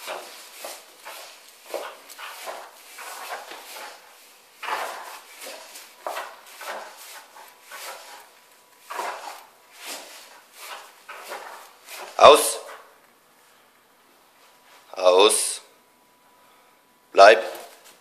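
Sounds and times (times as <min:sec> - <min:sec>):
dog paws scuffling on tiles: 0:00.0 - 0:12.9.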